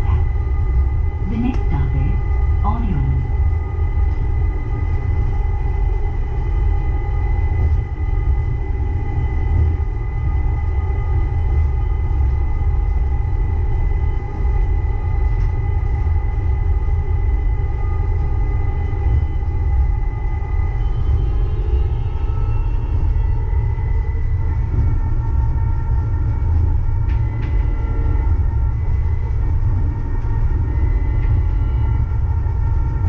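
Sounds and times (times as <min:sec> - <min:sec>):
drive motor whine: 0:00.0 - 0:33.0
light-rail train running: 0:00.0 - 0:33.0.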